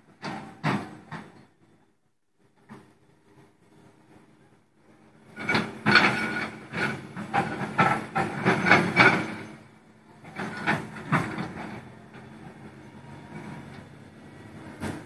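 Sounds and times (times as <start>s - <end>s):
excavator clanking on rock: 5.3s - 12.3s.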